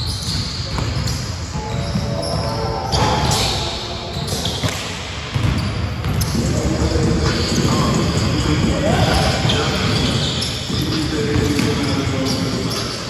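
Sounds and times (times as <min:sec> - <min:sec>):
basketball bouncing: 0:00.1 - 0:01.2, 0:04.2 - 0:12.8.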